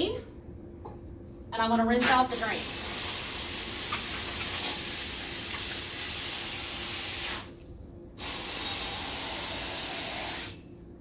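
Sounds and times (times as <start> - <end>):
hose spraying water: 2.3 - 7.5, 8.2 - 10.6.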